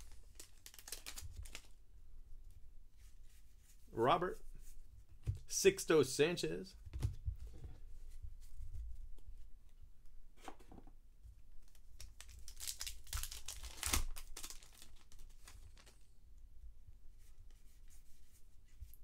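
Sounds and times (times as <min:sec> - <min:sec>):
plastic crinkling: 0:00.0 - 0:01.8, 0:11.6 - 0:16.1.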